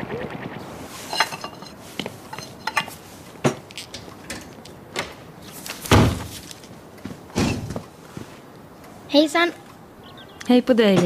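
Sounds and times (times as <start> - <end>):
dishes and cutlery clinking: 1.0 - 3.0.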